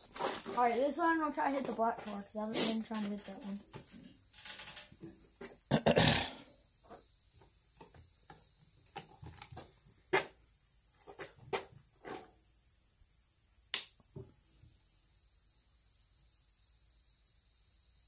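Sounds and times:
faint clicks and knocks: 2.9 - 5.5.

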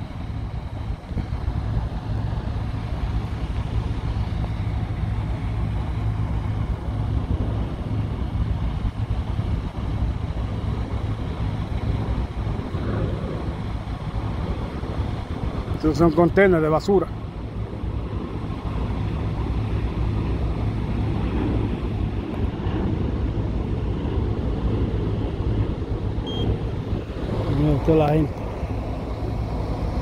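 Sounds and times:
engine running steadily: 0.0 - 30.0.

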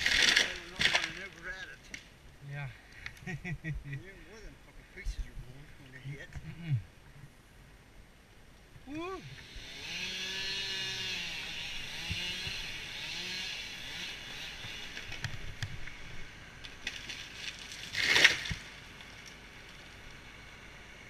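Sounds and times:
distant chainsaw cutting: 0.0 - 2.0, 8.9 - 16.9.

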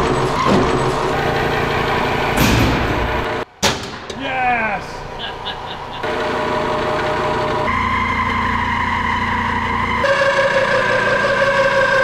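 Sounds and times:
milling machine cutting steel: 6.0 - 12.0.

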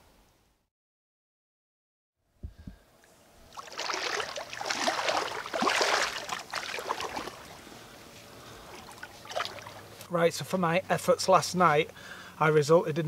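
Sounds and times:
water splashing and sloshing: 3.4 - 10.1.

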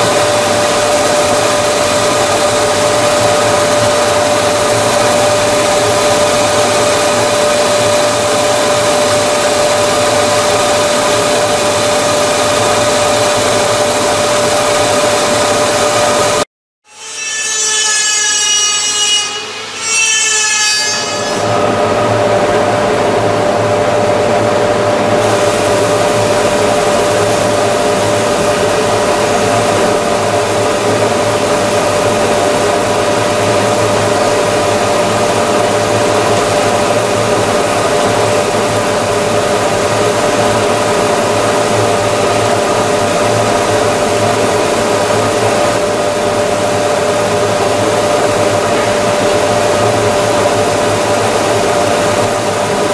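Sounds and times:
motor hum: 21.3 - 52.9.

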